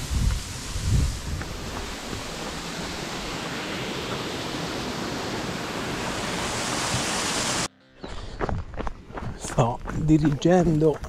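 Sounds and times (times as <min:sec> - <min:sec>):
rushing water: 0:00.0 - 0:07.7.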